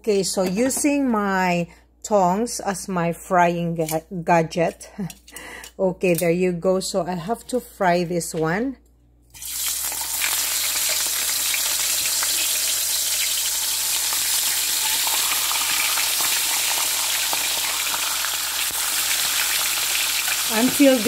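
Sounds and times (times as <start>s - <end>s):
fish sizzling in oil: 9.4s - 21.0s.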